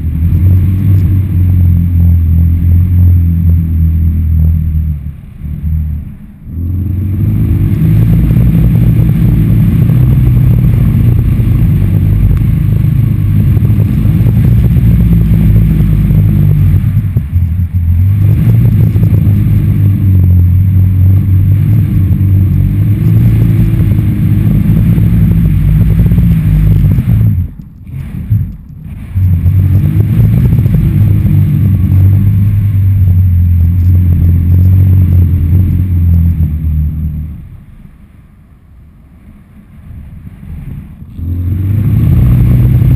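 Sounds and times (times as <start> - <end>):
low drone of taut kite lines: 0.0 - 42.9
wind buffeting camera: 5.7 - 37.3.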